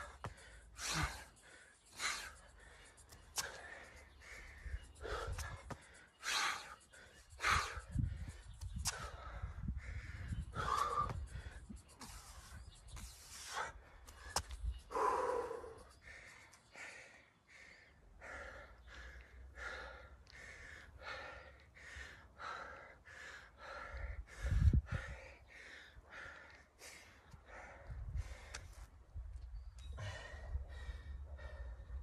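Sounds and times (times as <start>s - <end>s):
man panting hard: 0.0s - 28.9s, 30.0s - 32.0s.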